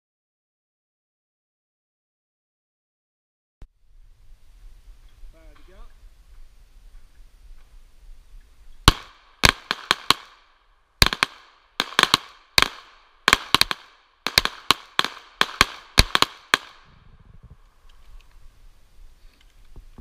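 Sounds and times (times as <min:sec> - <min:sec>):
pistol shots with echo: 0:08.9 - 0:16.9.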